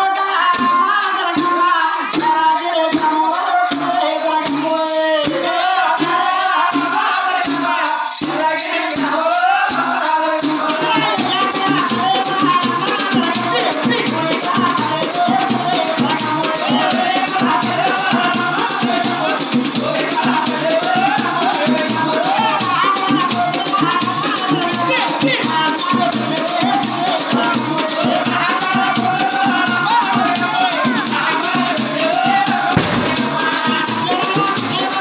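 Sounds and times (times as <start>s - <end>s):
hand percussion: 0.0s - 35.0s
voices singing: 0.0s - 35.0s
drum beats: 9.7s - 35.0s.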